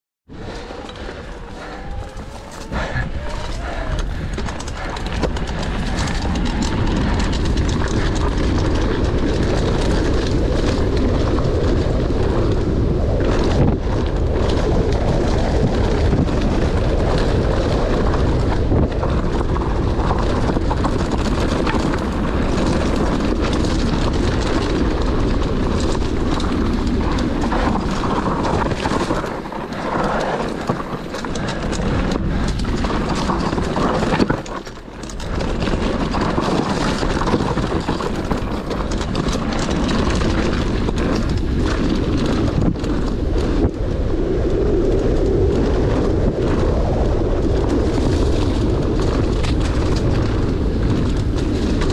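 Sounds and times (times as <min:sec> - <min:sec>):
tyres rolling on dirt: 0:00.3 - 0:51.9
bike knocks and rattles: 0:13.2 - 0:43.7.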